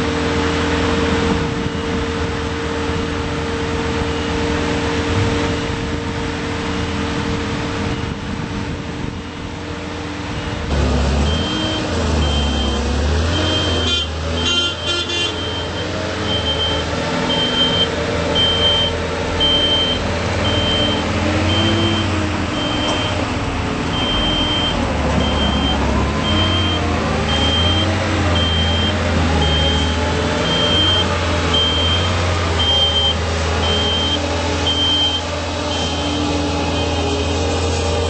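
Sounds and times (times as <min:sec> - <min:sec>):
boom lift engine running: 0:00.0 - 0:38.0
motion alarm beeping: 0:11.2 - 0:14.1, 0:15.4 - 0:23.2, 0:23.9 - 0:37.3.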